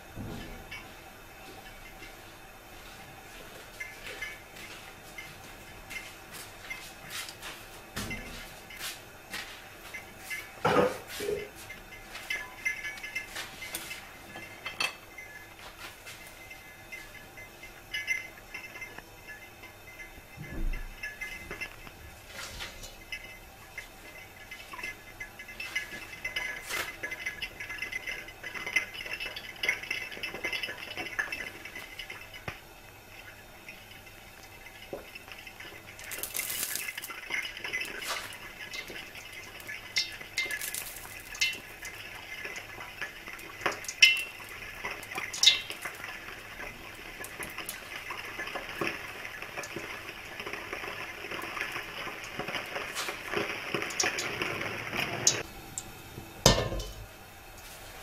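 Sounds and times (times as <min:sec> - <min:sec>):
metallic ticks and clinks: 0:03.6 - 0:06.9, 0:09.8 - 0:32.6, 0:33.2 - 0:52.8
pan hissing on flame: 0:05.6 - 0:58.0.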